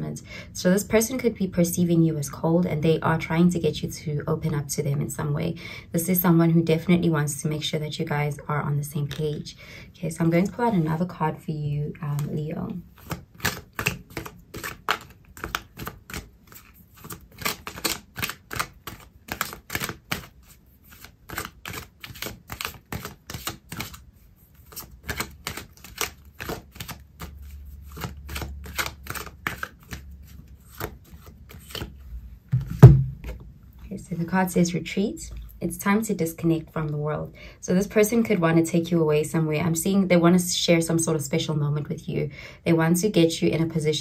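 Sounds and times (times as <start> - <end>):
loud knock: 32.6 - 33.4.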